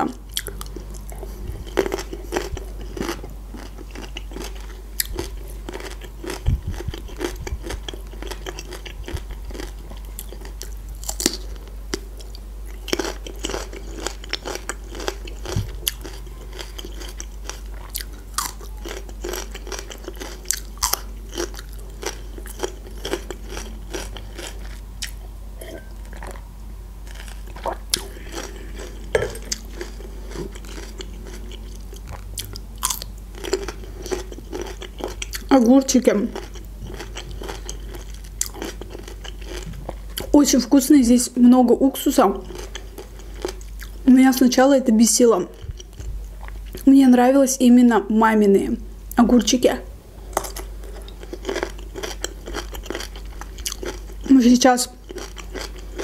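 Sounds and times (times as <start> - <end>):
crunching raw pepper: 0.4 - 26.4, 27.0 - 35.5, 50.3 - 54.3, 54.9 - 56.0.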